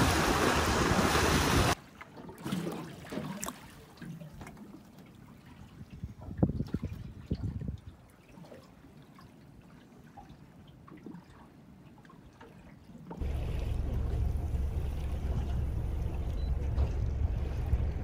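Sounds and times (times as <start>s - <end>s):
water rushing past hull: 0.0s - 9.4s, 13.1s - 18.0s
outboard boat engine rumbling: 13.1s - 18.0s.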